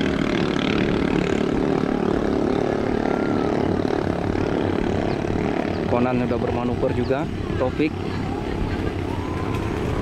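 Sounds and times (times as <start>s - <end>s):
boat engines droning: 0.0s - 10.0s.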